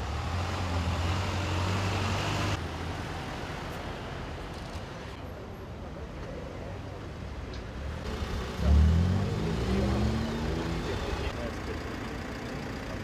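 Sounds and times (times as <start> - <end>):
cars and trucks driving past: 0.0 - 4.3, 8.0 - 13.0.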